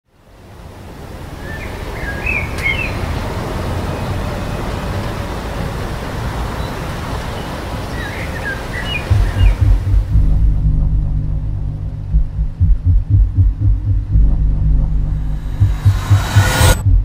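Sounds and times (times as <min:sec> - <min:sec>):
bird chirps: 0:08.0 - 0:09.8
steady low rumble: 0:09.1 - 0:17.0.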